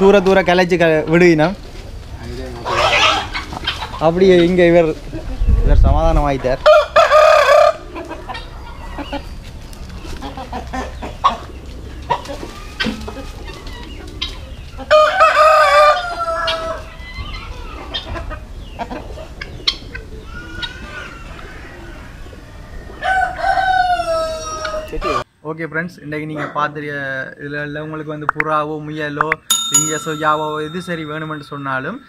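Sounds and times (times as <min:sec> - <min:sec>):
chickens clucking: 0:00.1 - 0:05.6, 0:06.6 - 0:25.2
roosters crowing: 0:02.5 - 0:04.1, 0:06.5 - 0:25.2.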